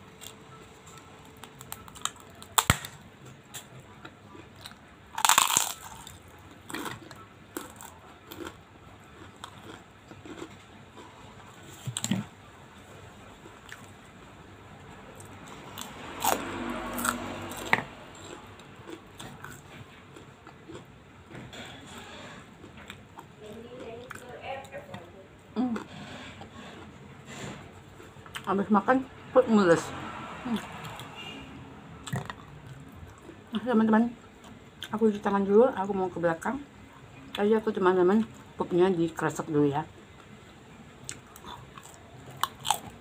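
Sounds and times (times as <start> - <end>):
crackers crunching: 0.0 - 12.4, 15.2 - 20.9, 41.0 - 43.0
chewing: 3.5 - 12.3, 15.2 - 20.9, 32.0 - 33.4, 41.0 - 43.0.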